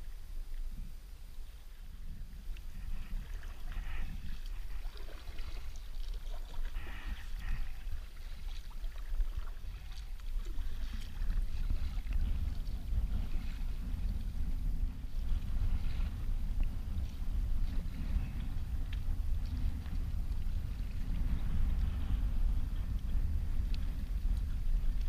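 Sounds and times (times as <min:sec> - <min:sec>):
kayak paddle splashing: 0:00.0 - 0:25.0
wind rumble on microphone: 0:00.0 - 0:25.0
water trickling off paddle: 0:02.4 - 0:22.0.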